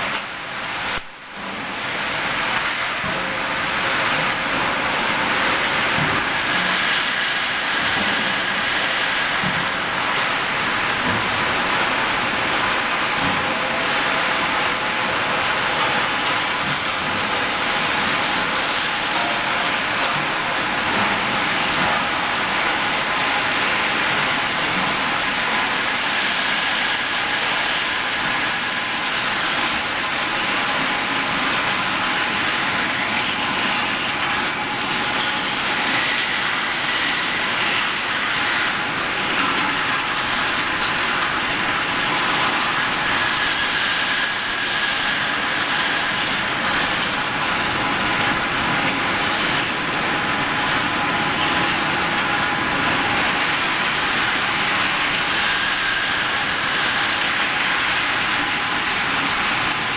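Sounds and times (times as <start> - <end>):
industrial rolling mill din: 0.0 - 59.9.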